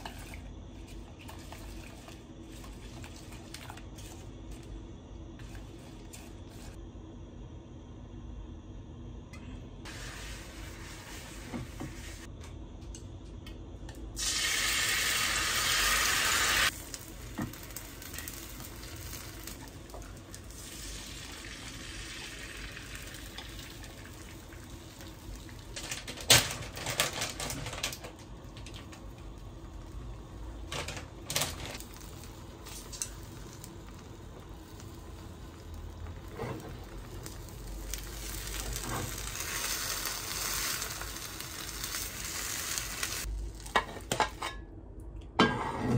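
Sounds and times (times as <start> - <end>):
egg whites sizzling in a pan: 9.8 - 12.3, 14.2 - 26.1, 28.3 - 44.2.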